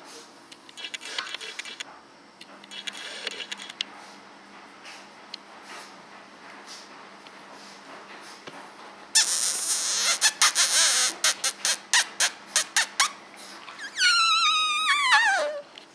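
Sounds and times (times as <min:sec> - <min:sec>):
puppy whining: 0:09.2 - 0:15.8.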